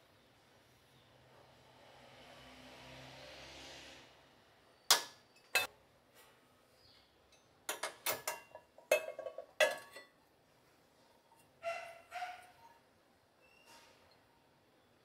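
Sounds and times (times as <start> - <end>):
enamel pans clanking: 7.7 - 10.2.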